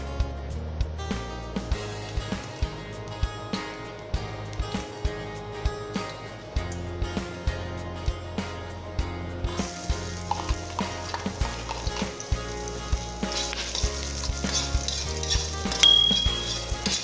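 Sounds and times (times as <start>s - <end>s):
garlic sizzling in hot oil: 9.5s - 17.0s
spatula stirring in wok: 9.8s - 17.0s.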